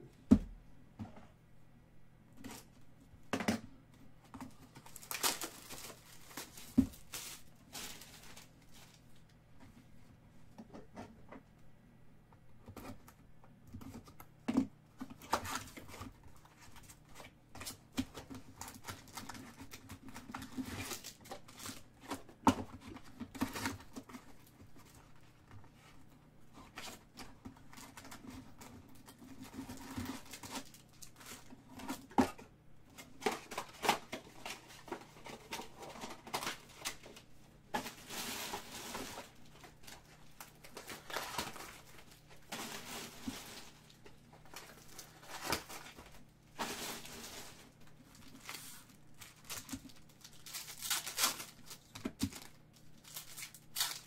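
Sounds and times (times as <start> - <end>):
foil packs crinkling: 4.6 - 9.1, 17.6 - 25.2, 26.7 - 32.1, 33.0 - 54.0.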